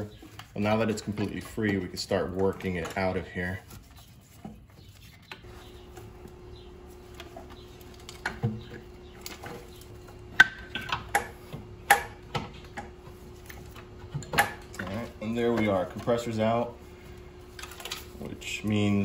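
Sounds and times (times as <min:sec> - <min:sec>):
faint steady hum: 0:05.3 - 0:19.0
metal and hose clunking: 0:07.2 - 0:16.6.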